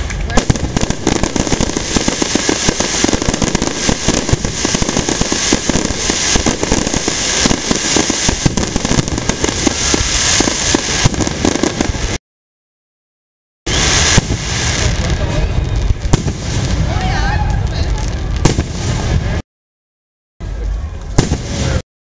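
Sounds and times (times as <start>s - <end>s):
fireworks bangs and crackling: 0.0s - 12.2s, 13.7s - 19.4s, 20.4s - 21.8s.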